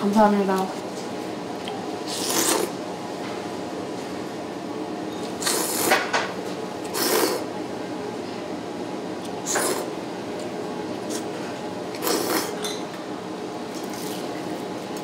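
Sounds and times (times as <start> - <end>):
hissing noodle slurps: 2.1 - 2.7, 5.4 - 6.0, 6.9 - 7.5, 12.0 - 12.6.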